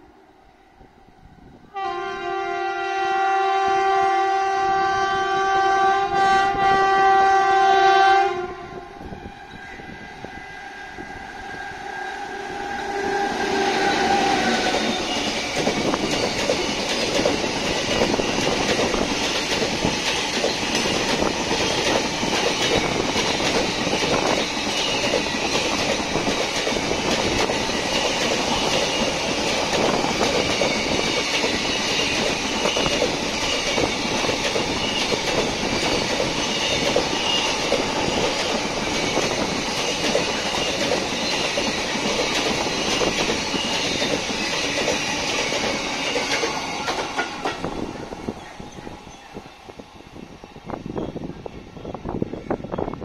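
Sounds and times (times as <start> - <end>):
locomotive horn chord: 1.7 - 9.0
freight train wheels clattering: 13.8 - 49.4.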